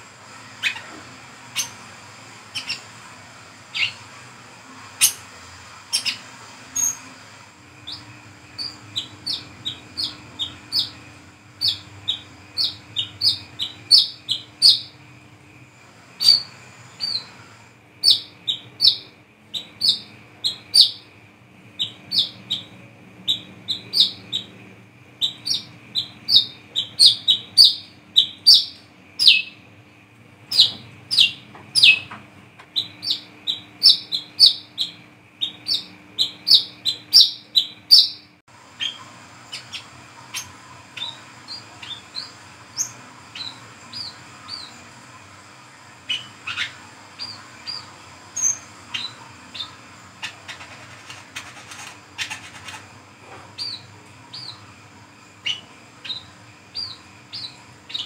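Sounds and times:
faint steady hum: 0.0 - 58.0
bird high chirps: 0.6 - 0.9, 1.6 - 1.8, 2.5 - 2.9, 3.7 - 4.0, 5.9 - 7.1, 7.8 - 15.0, 16.2 - 17.4, 18.0 - 21.2, 21.8 - 24.6, 25.2 - 29.6, 30.5 - 32.1, 32.7 - 44.9, 46.1 - 50.8, 53.6 - 54.6, 55.4 - 58.0.

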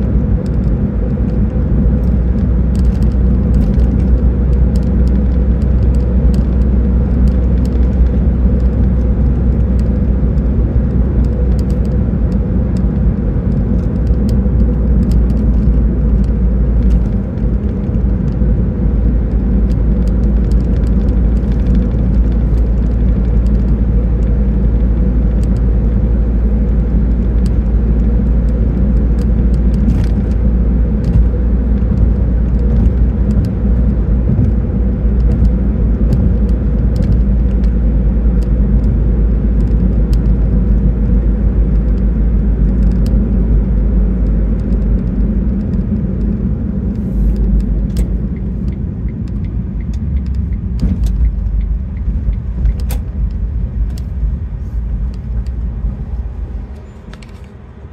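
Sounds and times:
vehicle driving rumble: 0.0 - 57.9
light ticks: 46.9 - 54.1.

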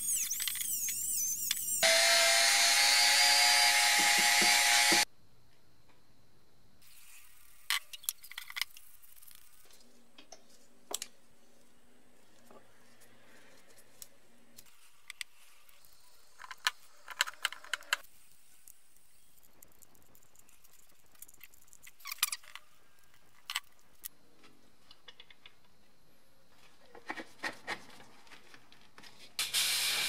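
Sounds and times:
faint steady hiss: 5.1 - 27.0.

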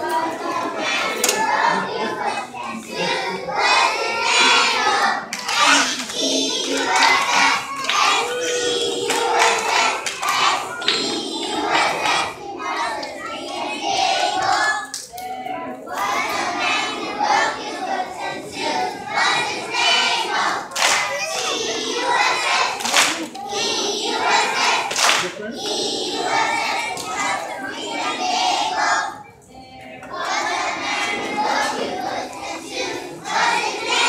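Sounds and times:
children singing in unison: 0.0 - 34.0
hand claps: 5.3 - 11.0, 20.7 - 21.5, 22.8 - 23.4, 24.9 - 25.4.

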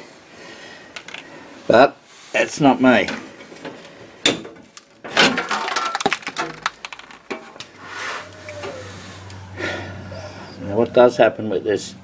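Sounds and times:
low steady hum: 5.3 - 12.0.

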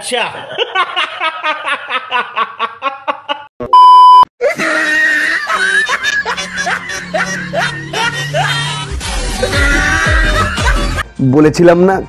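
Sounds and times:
censor bleep: 3.7 - 4.3
music: 4.9 - 12.0.

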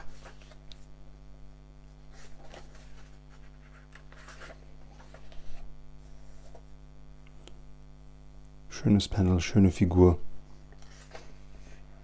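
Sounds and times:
pages turning paper rustling: 0.0 - 0.9, 2.1 - 6.7, 10.7 - 11.8
electrical hum: 0.0 - 12.0.

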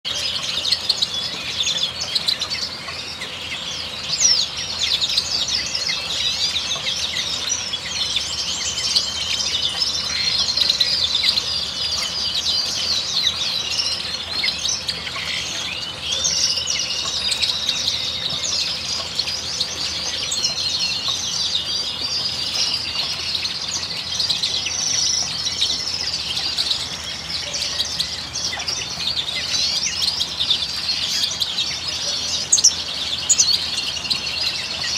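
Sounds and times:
finches chirping and trilling: 0.1 - 34.9.

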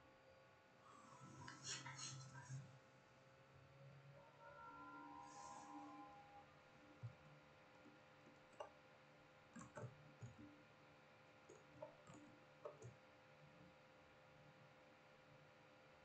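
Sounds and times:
low electrical hum: 0.0 - 16.0
faint clicks and light taps: 7.0 - 8.8, 9.5 - 10.6, 11.4 - 13.0.

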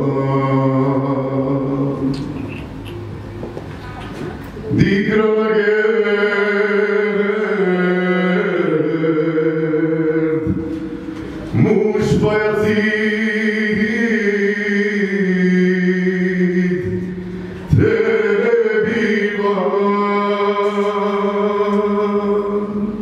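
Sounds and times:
man singing long notes: 0.0 - 2.4, 4.6 - 23.0.

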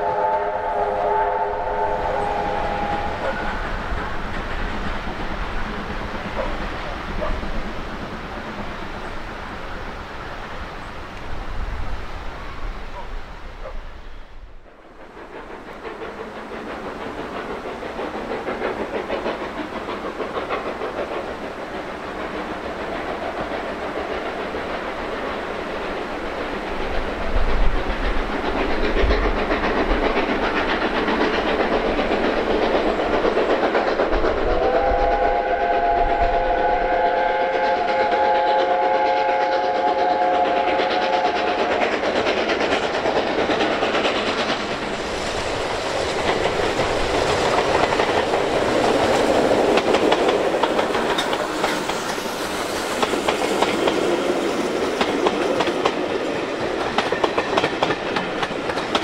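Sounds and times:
chime steam whistle: 0.0 - 3.8, 34.5 - 41.6
steam locomotive running on rails: 0.0 - 59.0.

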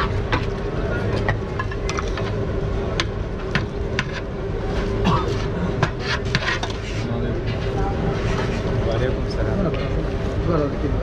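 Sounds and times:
constant hum: 0.0 - 11.0
low street rumble: 0.0 - 11.0.

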